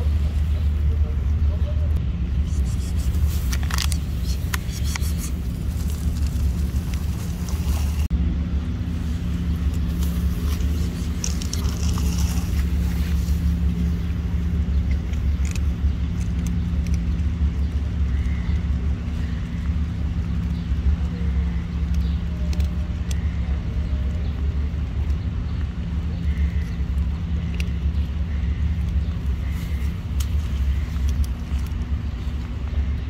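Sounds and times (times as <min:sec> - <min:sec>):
low rumble: 0:00.0 - 0:33.0
dry cat food ticking on ground: 0:02.5 - 0:08.0, 0:08.8 - 0:33.0.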